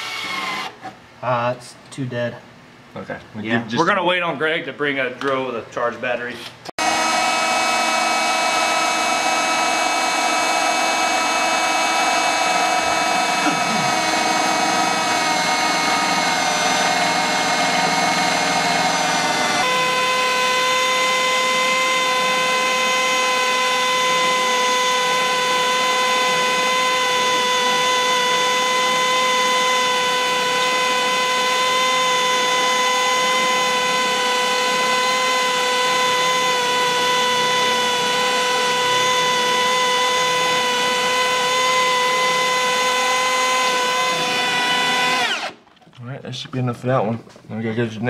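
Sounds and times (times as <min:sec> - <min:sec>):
cordless drill whining: 0:00.0 - 0:01.0, 0:06.8 - 0:45.7.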